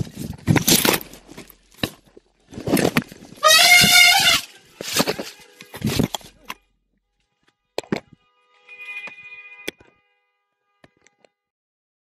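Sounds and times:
rustling crashing bursts: 0:02.5 - 0:06.1
elephant trumpeting: 0:03.4 - 0:04.5.

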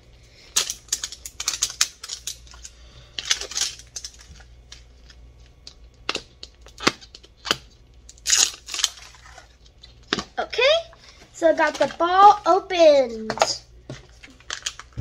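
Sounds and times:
wrapper crackling: 0:08.1 - 0:10.0, 0:14.2 - 0:15.0.

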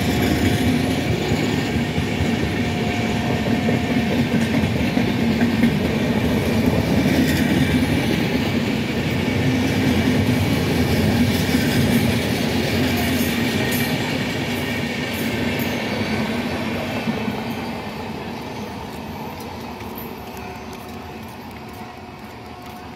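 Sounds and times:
passenger train rumbling past: 0:00.0 - 0:22.9
wheels clattering on rails: 0:00.0 - 0:22.9.

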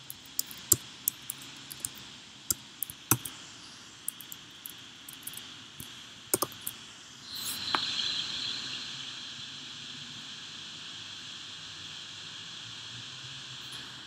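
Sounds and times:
computer mouse clicks: 0:00.0 - 0:03.3, 0:04.1 - 0:06.7
steady hiss: 0:00.0 - 0:14.0.

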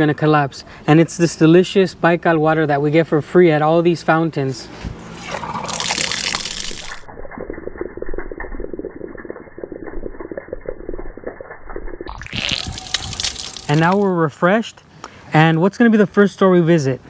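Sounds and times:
water pouring and splashing: 0:05.1 - 0:14.1.

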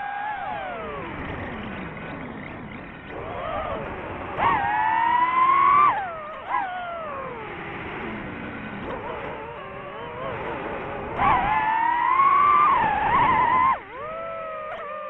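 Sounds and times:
drone propellers whining: 0:00.0 - 0:15.0.

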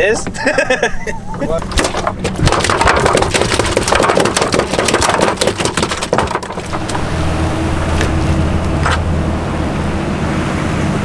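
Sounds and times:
boat engine humming: 0:00.0 - 0:11.0
crackling knocks: 0:01.5 - 0:07.2.

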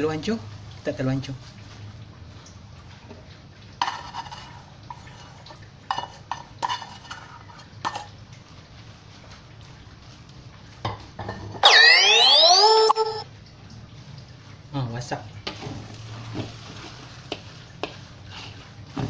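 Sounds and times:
spatula scraping a wok: 0:03.8 - 0:08.1, 0:16.2 - 0:19.0.

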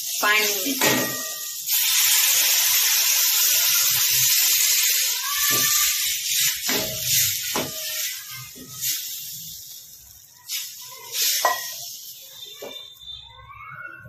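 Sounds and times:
water sizzling in hot oil: 0:00.0 - 0:13.8
spatula scraping a pan: 0:05.4 - 0:09.3, 0:10.5 - 0:12.9.

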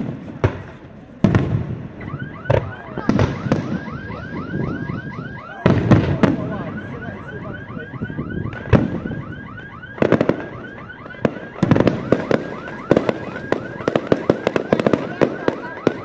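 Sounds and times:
fireworks bangs: 0:00.0 - 0:16.0
warbling electronic alarm tone: 0:02.0 - 0:16.0.

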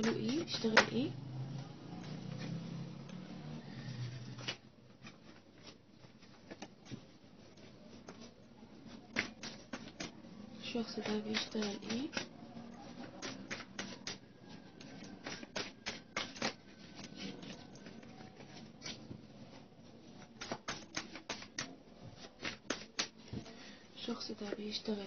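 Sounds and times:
cards being shuffled: 0:14.8 - 0:23.5.

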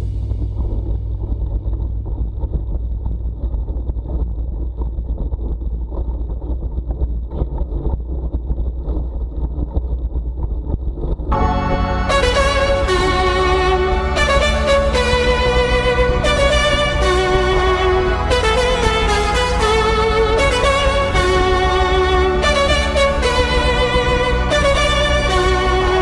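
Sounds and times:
music with violin: 0:11.4 - 0:26.0.

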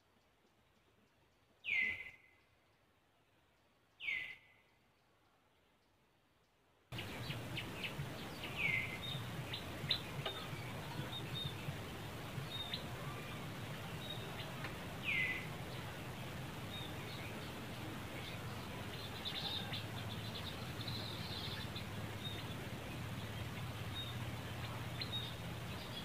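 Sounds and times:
steady background hiss: 0:00.0 - 0:26.0
birds chirping: 0:00.1 - 0:26.0
short falling bird calls: 0:07.0 - 0:26.0.

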